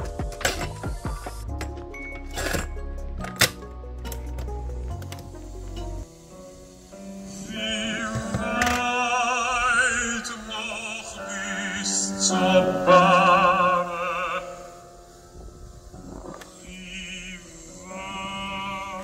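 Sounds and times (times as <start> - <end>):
low sustained accompanying note: 5.6 - 19.0
operatic singing with vibrato: 7.0 - 15.1, 16.3 - 19.0.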